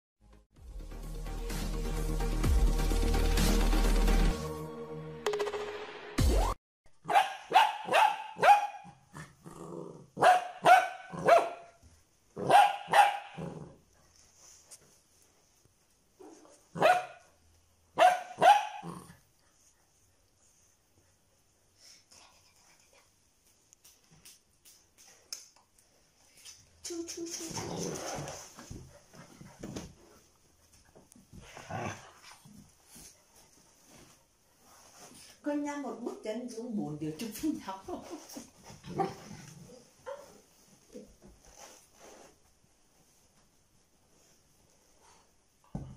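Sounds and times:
puppy barking: 7.0s - 9.0s, 10.2s - 11.7s, 12.4s - 13.4s, 16.8s - 17.2s, 18.0s - 19.0s
puppy growling low: 9.2s - 10.2s.

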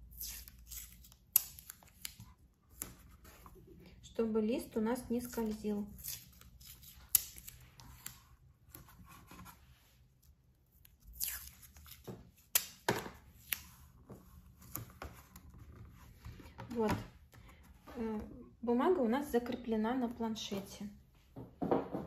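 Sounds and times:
masking tape being torn: 0.0s - 3.0s, 5.9s - 8.2s, 10.8s - 13.7s.

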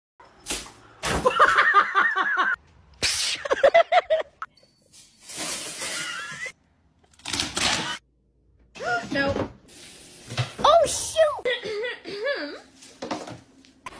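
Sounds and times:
person laughing: 3.2s - 4.5s.

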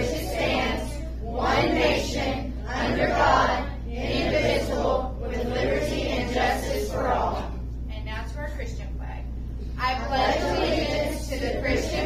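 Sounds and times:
group reciting in unison: 0.0s - 7.7s, 10.0s - 12.0s.

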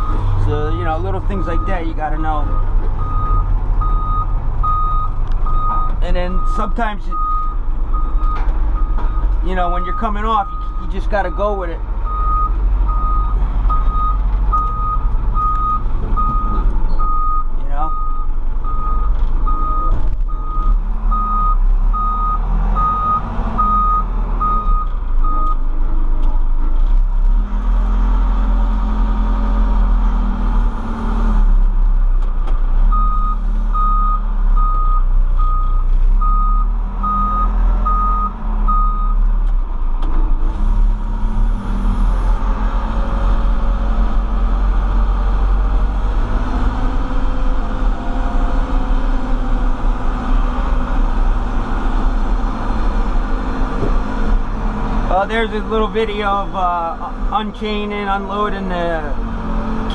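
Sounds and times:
diesel engine running: 0.0s - 59.9s
backup alarm beeping: 2.4s - 25.6s.

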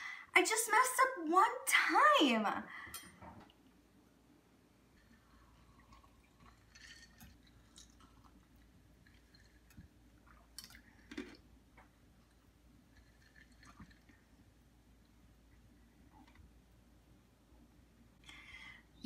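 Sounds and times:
ice being chewed: 5.0s - 11.5s, 12.2s - 14.5s.

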